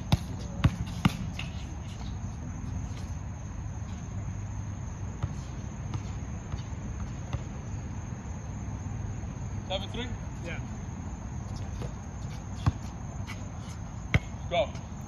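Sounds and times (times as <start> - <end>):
basketball bouncing on court: 0.1 - 1.4, 14.1 - 14.4.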